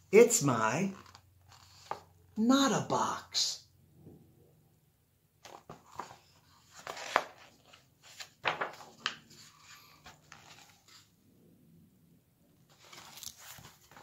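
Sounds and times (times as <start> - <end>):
book rustling and scraping: 0.9 - 2.2, 5.4 - 11.2, 12.6 - 14.0.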